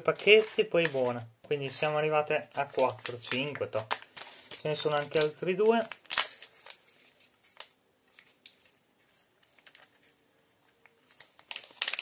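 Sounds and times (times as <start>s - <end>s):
packet rustling and clicks: 0.0s - 12.0s.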